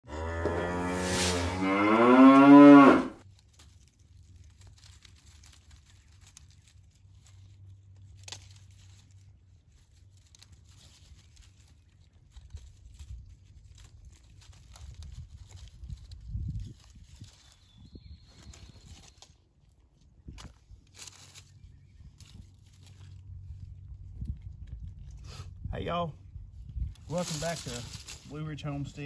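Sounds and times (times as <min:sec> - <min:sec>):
cow mooing: 0:00.0 - 0:03.2
rustles of wire netting in leaves: 0:00.1 - 0:25.4, 0:26.4 - 0:29.0.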